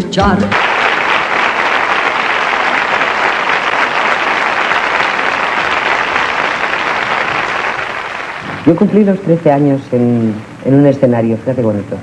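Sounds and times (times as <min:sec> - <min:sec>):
large audience applauding: 0:00.5 - 0:08.9.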